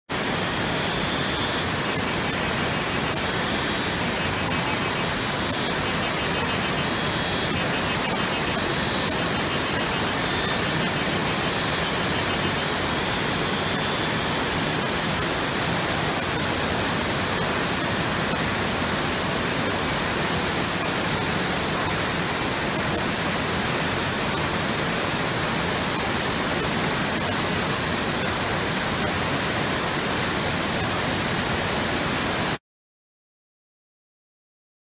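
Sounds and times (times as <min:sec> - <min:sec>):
waterfall rushing: 0:00.1 - 0:32.6.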